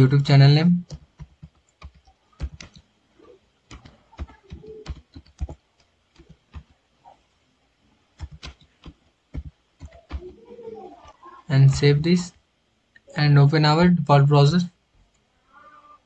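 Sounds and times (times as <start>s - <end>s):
typing on a computer keyboard: 0.8s - 2.9s, 3.7s - 6.8s, 8.2s - 10.4s.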